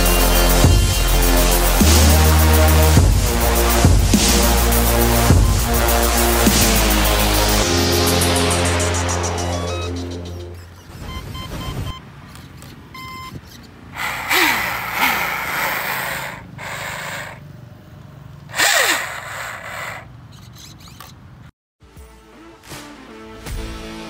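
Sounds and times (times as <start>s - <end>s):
electric motor whirring: 12.4s - 17.4s, 18.5s - 21.2s.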